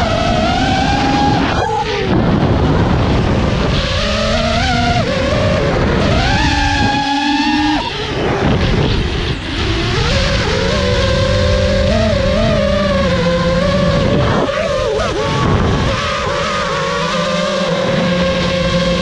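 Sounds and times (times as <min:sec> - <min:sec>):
drone motors whining: 0:00.0 - 0:19.0
wind rush over microphone: 0:00.0 - 0:19.0.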